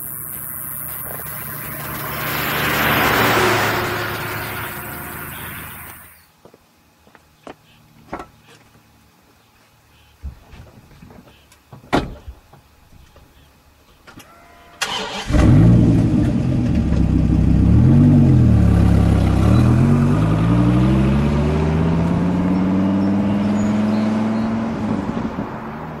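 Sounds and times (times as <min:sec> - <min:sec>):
car engine starting and revving: 0:00.8 - 0:06.1, 0:14.8 - 0:26.0.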